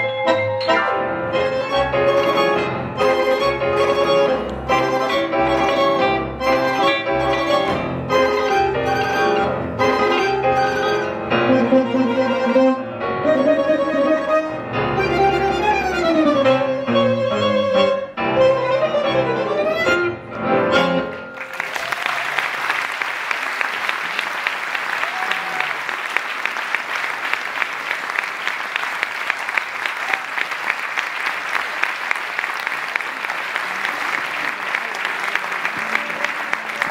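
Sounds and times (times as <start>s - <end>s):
tango ensemble playing chords: 0.0s - 21.6s
audience applauding: 21.0s - 36.9s.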